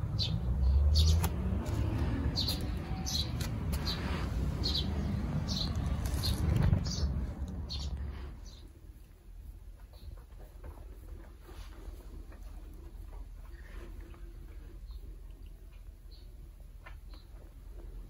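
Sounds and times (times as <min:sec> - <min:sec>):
low rumble: 0:00.0 - 0:08.8
small birds chirping: 0:00.0 - 0:09.0, 0:09.8 - 0:10.6, 0:12.7 - 0:18.0.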